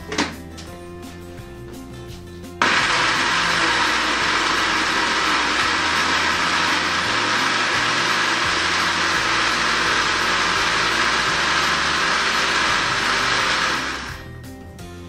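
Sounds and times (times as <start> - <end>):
blender running: 2.6 - 14.4.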